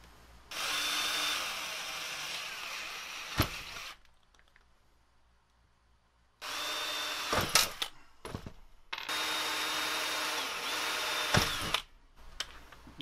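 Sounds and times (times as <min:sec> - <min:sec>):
drill whining into metal: 0:00.5 - 0:04.0, 0:06.4 - 0:07.9, 0:09.0 - 0:11.9.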